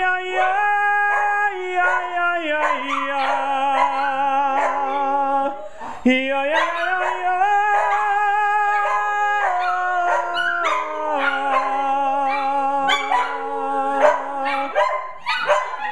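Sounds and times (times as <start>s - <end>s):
dogs howling in chorus: 0.0s - 15.9s
dog yipping: 0.4s - 5.1s, 8.8s - 13.4s, 14.0s - 15.9s.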